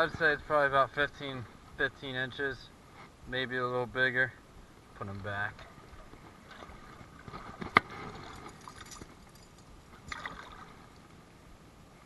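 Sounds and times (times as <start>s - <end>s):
water sloshing: 5.1s - 11.1s
short splash: 10.1s - 10.9s.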